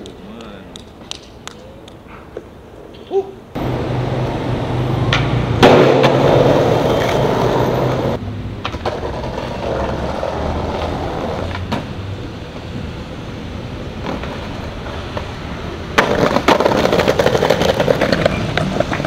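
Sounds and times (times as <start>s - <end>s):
skateboard wheels rolling on concrete: 0.0s - 19.0s
skateboard clacks: 5.1s - 11.9s, 14.0s - 19.0s.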